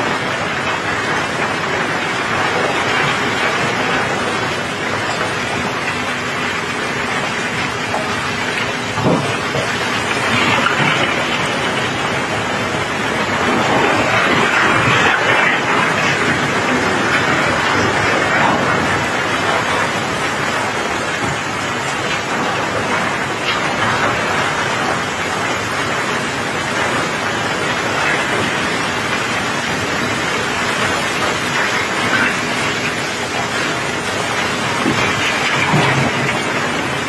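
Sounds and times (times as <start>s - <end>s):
gravel pouring down steel ramp: 0.0s - 37.0s
rain falling: 0.0s - 37.0s.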